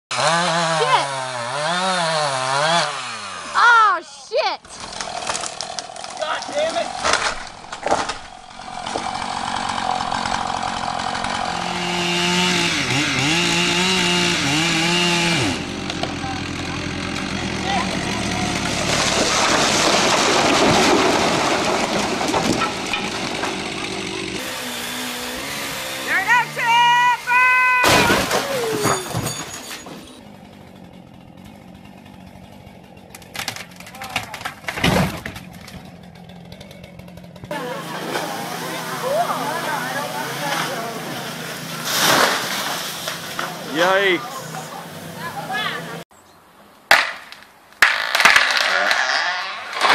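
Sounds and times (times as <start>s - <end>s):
chainsaw at high revs: 0.1s - 3.8s, 4.6s - 27.6s, 30.2s - 33.3s, 35.7s - 46.1s, 47.9s - 49.9s
tree limb crashing through roof: 4.8s - 24.4s, 27.8s - 29.6s, 33.0s - 37.4s, 39.4s - 44.2s, 47.8s - 49.9s
debris clattering: 18.4s - 24.1s, 27.8s - 30.2s, 41.7s - 43.8s, 49.7s - 49.9s.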